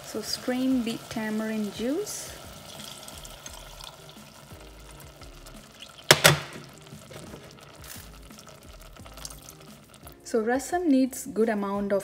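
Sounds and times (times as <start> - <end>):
liquid trickling: 0.1 - 10.3
sharp knocks: 6.1 - 6.6.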